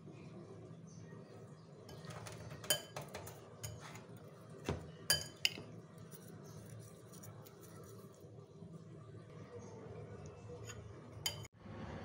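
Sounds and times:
metal spoon clinking on plate: 1.9 - 4.1, 5.1 - 5.7, 10.6 - 11.5.

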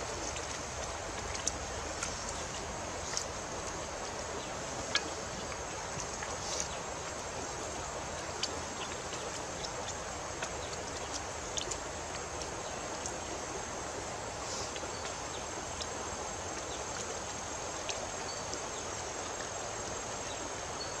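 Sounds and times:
background hiss: 0.0 - 21.0.

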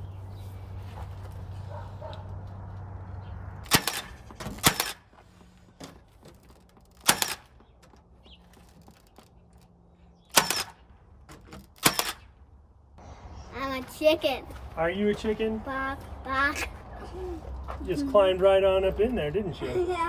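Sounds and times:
nail gun firing: 3.6 - 5.1, 6.9 - 7.6, 10.3 - 10.8, 11.5 - 12.3.

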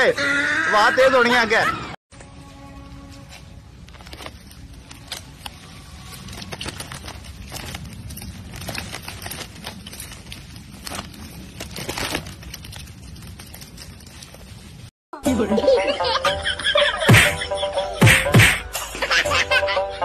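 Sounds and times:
plastic wrappers crinkling: 3.2 - 14.9.

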